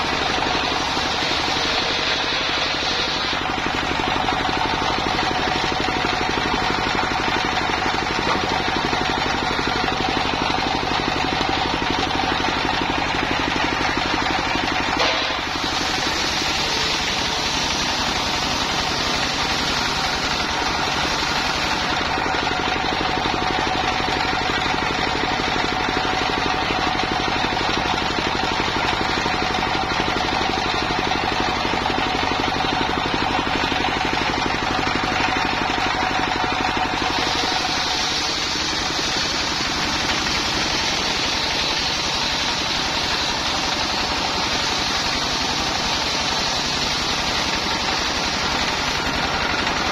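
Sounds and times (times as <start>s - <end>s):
diesel engine chugging: 0.0s - 49.9s.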